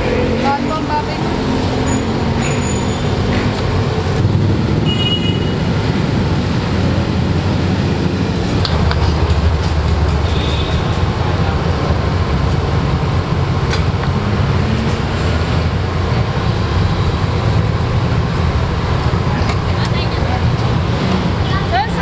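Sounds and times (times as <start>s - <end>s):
street traffic rumble: 0.0s - 22.0s.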